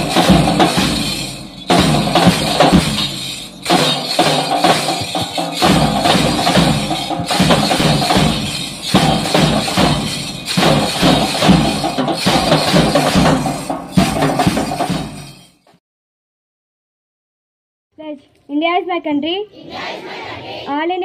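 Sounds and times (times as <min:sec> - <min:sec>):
bass drum: 0:00.0 - 0:15.3
snare drum: 0:00.0 - 0:15.5
metal hand shakers: 0:00.0 - 0:15.7.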